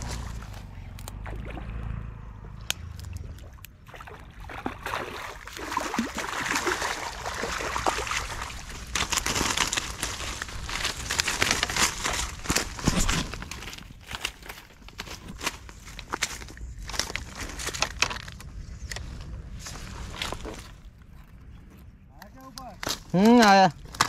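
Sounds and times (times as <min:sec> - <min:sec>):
crackling through dry grass: 0:00.0 - 0:03.8, 0:04.6 - 0:24.0
fish splashing and thrashing: 0:00.0 - 0:18.6.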